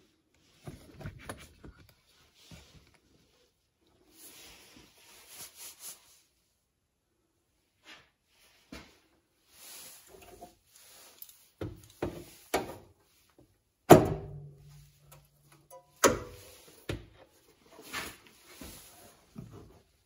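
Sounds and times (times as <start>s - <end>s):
metal bars knocking and clunking: 13.9s - 17.1s.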